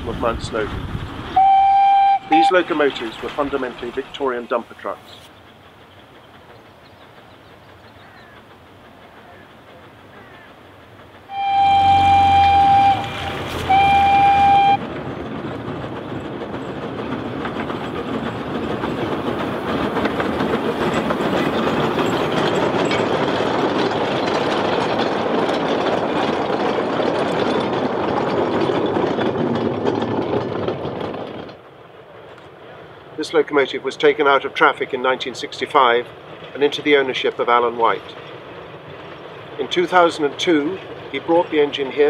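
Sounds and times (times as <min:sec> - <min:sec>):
train rattling past: 0:00.0 - 0:42.0
steam whistle blasts: 0:01.4 - 0:02.5, 0:11.3 - 0:14.8.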